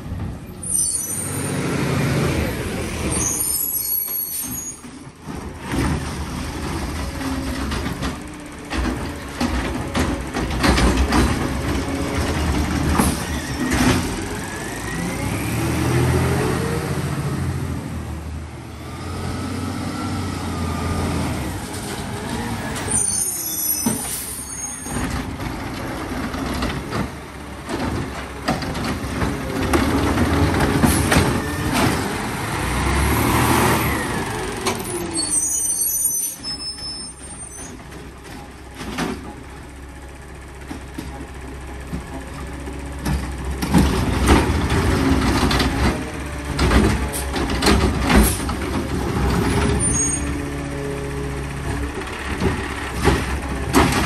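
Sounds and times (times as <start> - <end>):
diesel engine revving: 1.2 - 3.7, 5.3 - 36.0, 37.3 - 54.0
metal clanks and knocks: 7.5 - 14.2.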